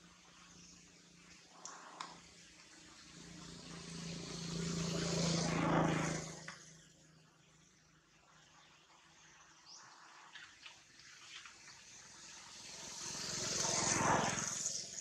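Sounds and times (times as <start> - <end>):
motor vehicle passing by: 0.1 - 7.5, 11.6 - 15.0.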